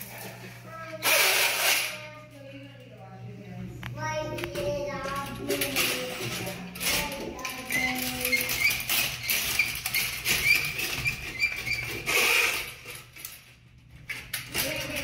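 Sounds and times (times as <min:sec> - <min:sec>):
auger cable squeaking and scraping: 0:06.8 - 0:13.1.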